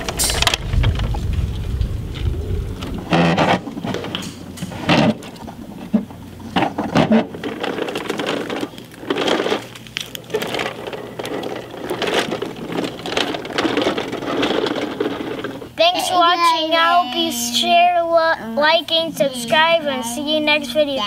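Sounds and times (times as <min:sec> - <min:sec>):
toy truck wheels rattling on concrete: 0:06.5 - 0:15.8.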